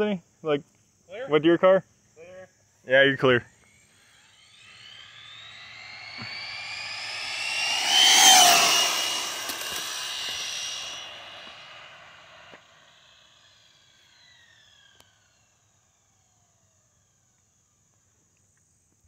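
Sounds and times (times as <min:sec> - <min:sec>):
electric motor whining: 0:03.6 - 0:15.4.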